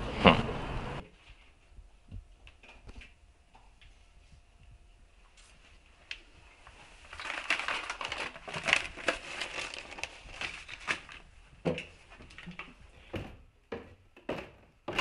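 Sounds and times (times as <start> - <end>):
paper crumpling: 6.7 - 11.3.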